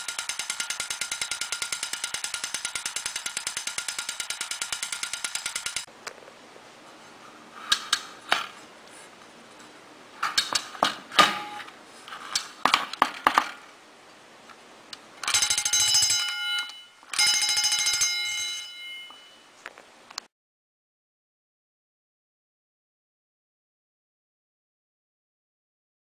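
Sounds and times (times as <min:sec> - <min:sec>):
fire bell ringing rapidly: 0:00.0 - 0:05.9, 0:15.3 - 0:19.5.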